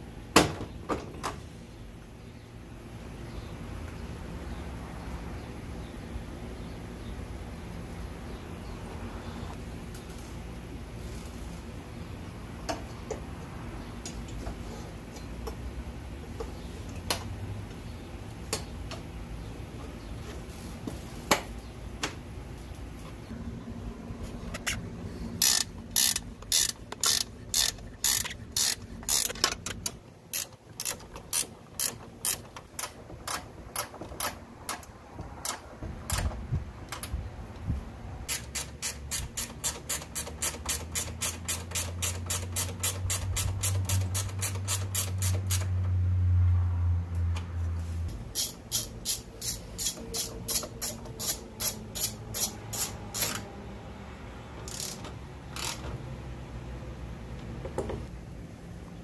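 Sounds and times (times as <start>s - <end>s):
low steady hum: 0.0s - 38.4s
ratchet wrench clicking: 25.4s - 35.6s, 38.3s - 45.8s, 48.3s - 53.5s, 54.6s - 55.8s.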